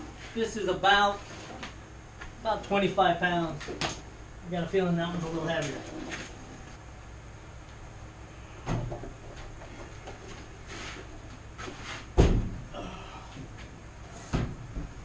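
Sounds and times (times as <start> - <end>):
heavy machine thudding on cabinet: 12.2 - 12.7.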